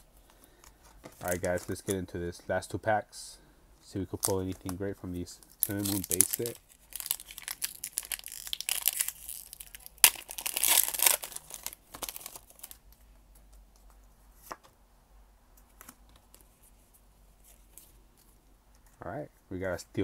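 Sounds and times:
foil wrapper tearing and crinkling: 0:05.6 - 0:12.8.

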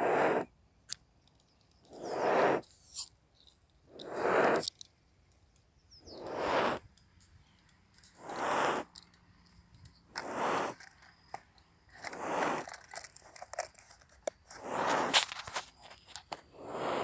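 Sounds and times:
cow breathing heavily: 0:00.0 - 0:00.5, 0:01.9 - 0:02.6, 0:03.9 - 0:04.7, 0:08.1 - 0:09.0, 0:10.2 - 0:10.9, 0:12.0 - 0:12.8, 0:14.5 - 0:15.3, 0:16.5 - 0:17.0
faint clicks and rustles: 0:00.9 - 0:02.0, 0:06.8 - 0:08.2, 0:08.8 - 0:16.5.

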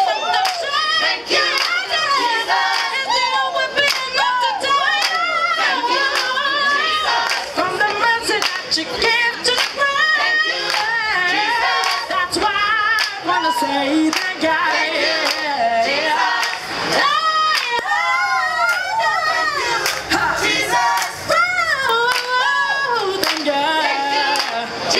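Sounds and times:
choir singing without instruments: 0:00.0 - 0:24.9
hand claps: 0:01.6 - 0:01.8, 0:02.7 - 0:02.9, 0:03.8 - 0:04.1, 0:07.2 - 0:08.6, 0:09.5 - 0:09.8, 0:10.7 - 0:10.9, 0:11.8 - 0:12.0, 0:13.0 - 0:13.2, 0:14.1 - 0:14.4, 0:15.2 - 0:15.5, 0:16.4 - 0:16.6, 0:17.6 - 0:17.9, 0:19.8 - 0:20.0, 0:21.9 - 0:22.4, 0:23.2 - 0:23.5, 0:24.4 - 0:24.6.

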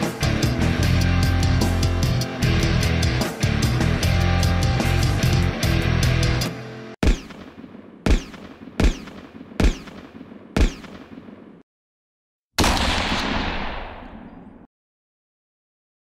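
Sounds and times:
rock music: 0:00.0 - 0:07.0
echoing gunshot effects: 0:07.0 - 0:11.6, 0:12.6 - 0:14.7.

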